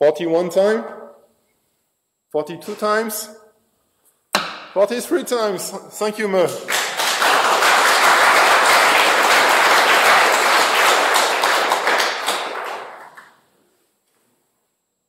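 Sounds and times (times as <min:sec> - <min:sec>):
audience applauding: 0:06.6 - 0:13.4.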